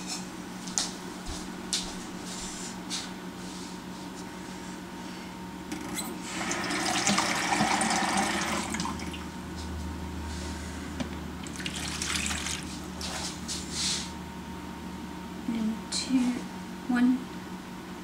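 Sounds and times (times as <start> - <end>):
tap running water into cup: 6.5 - 9.2, 11.4 - 12.8.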